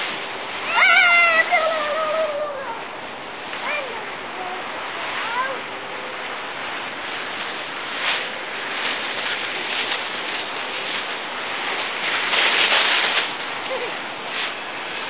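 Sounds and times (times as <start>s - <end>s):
dry leaves rustling and crunching: 6.6s - 15.0s.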